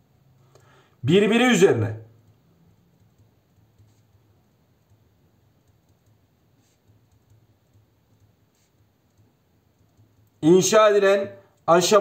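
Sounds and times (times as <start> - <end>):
pen writing on paper: 6.6 - 8.9.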